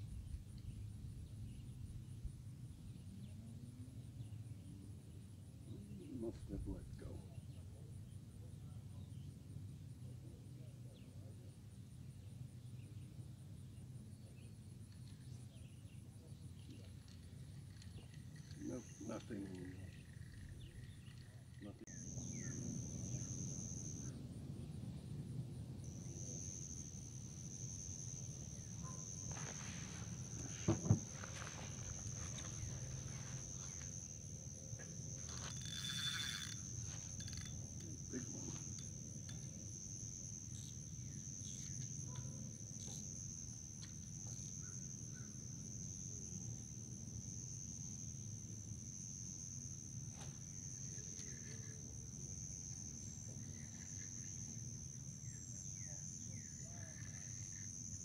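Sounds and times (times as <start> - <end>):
insects trilling: 0.0 - 58.0
knocks: 30.6 - 31.1.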